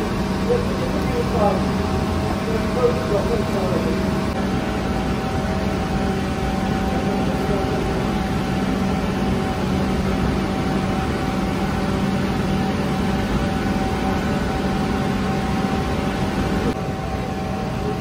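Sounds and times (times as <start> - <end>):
machinery drone: 0.0 - 18.0.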